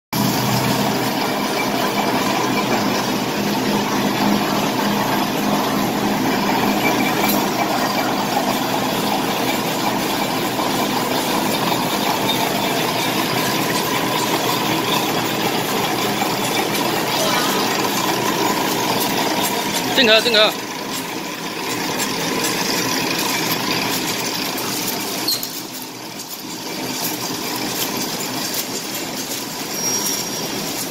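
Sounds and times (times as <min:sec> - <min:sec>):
wrapping machine running: 0:00.2 - 0:30.9.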